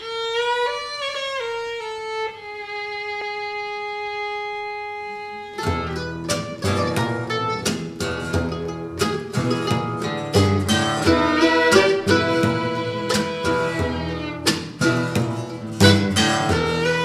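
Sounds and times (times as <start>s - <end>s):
violin playing: 0.0s - 7.7s, 10.6s - 17.0s
strummed and plucked string chords: 5.3s - 17.0s.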